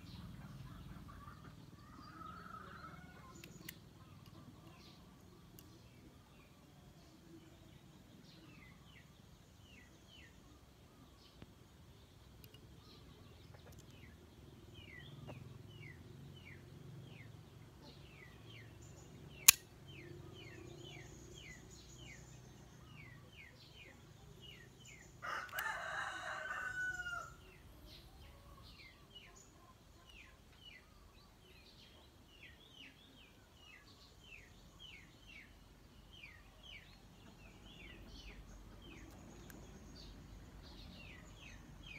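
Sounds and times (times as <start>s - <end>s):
small birds chirping: 0.0s - 41.9s
sharp click: 19.3s - 19.8s
rooster crowing: 25.2s - 27.4s.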